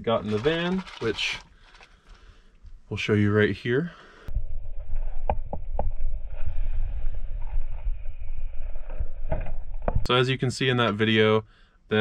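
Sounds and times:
low fluctuating rumble: 4.3 - 10.1.

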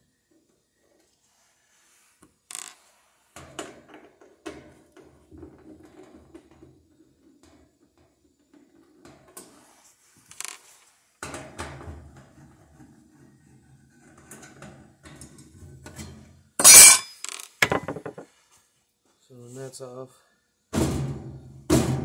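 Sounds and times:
rustling and scraping: 0.6 - 4.2, 8.4 - 11.2.

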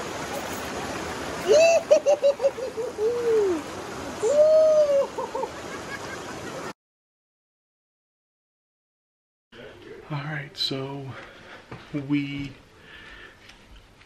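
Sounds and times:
creek water rushing: 0.0 - 6.7.

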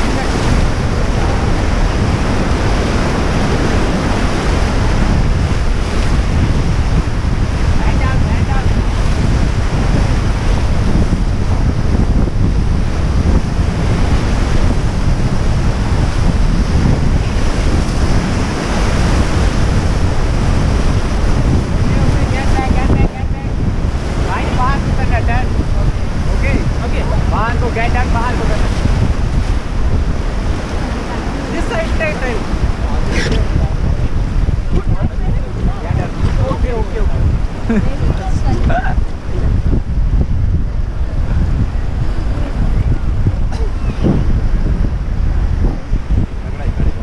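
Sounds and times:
river rapids rushing: 0.0 - 6.4, 24.2 - 39.4
wind buffeting microphone: 0.0 - 47.0.

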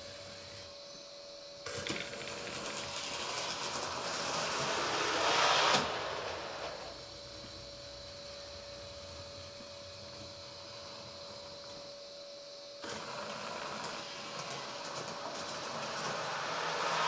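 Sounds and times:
model train running on track: 1.7 - 9.5, 12.8 - 17.0.

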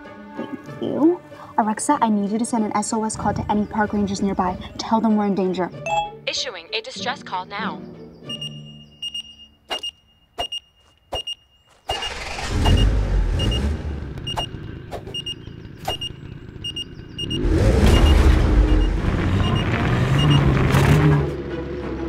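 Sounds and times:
low vehicle engine rumble: 0.7 - 5.8, 12.0 - 22.0
short high electronic beeps: 8.3 - 12.8, 14.3 - 14.5.

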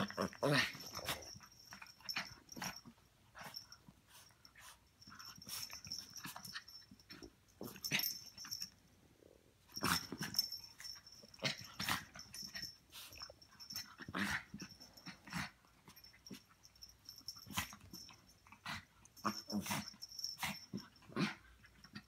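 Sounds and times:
dogs growling: 0.0 - 2.8.

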